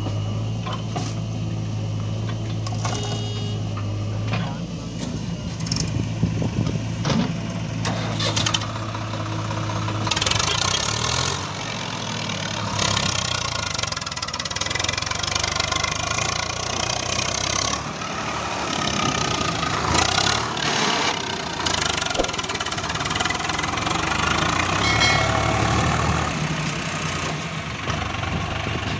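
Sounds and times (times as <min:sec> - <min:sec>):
tractor diesel engine running: 0:00.0 - 0:28.9.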